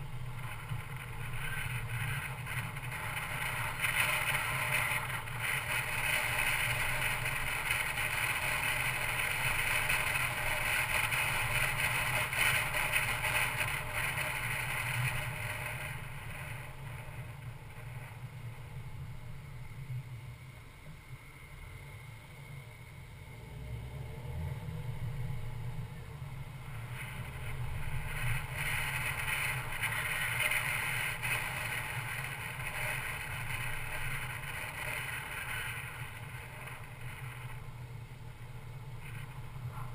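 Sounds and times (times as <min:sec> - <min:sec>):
car road and wind noise: 0:00.0 - 0:39.9.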